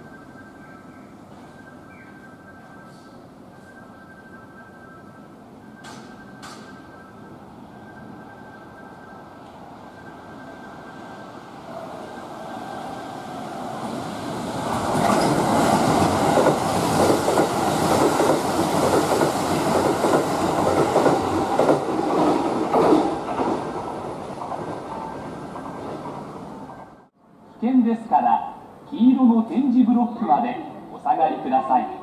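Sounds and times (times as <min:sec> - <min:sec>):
train rumble: 0:00.0 - 0:27.6
rhythmic wheel clicks over rail joints: 0:05.8 - 0:07.0, 0:14.8 - 0:24.7.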